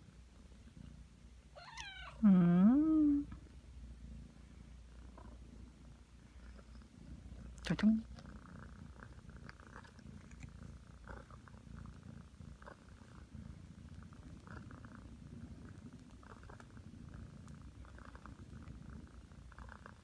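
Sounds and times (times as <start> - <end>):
cat purring softly: 0.0 - 20.0.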